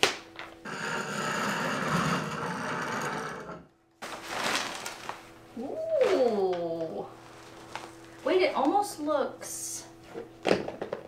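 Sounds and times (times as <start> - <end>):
plastic wrapping crinkling: 4.0 - 8.2.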